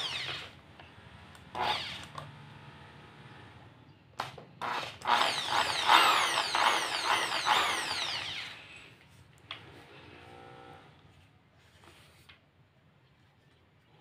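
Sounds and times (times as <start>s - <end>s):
impact drill whine: 0.0s - 0.6s, 1.5s - 2.2s, 4.6s - 9.0s.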